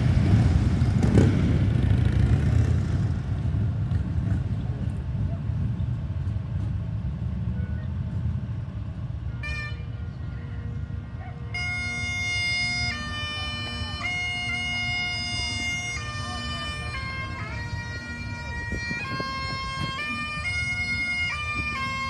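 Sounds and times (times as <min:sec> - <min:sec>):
vehicles passing rumble: 0:00.0 - 0:22.0
bagpipes playing: 0:09.2 - 0:22.0.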